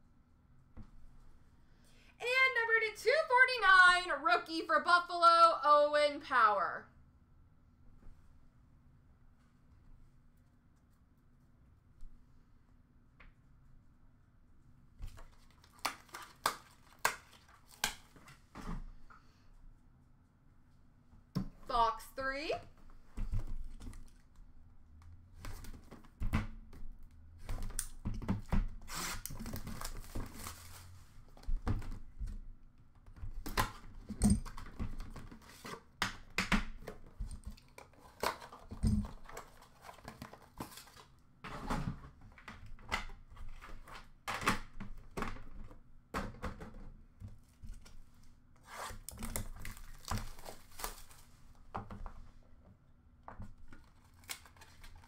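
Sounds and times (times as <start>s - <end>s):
plastic wrap tearing and crinkling: 15.2s - 18.2s, 28.8s - 31.0s, 48.6s - 51.4s, 53.7s - 55.0s.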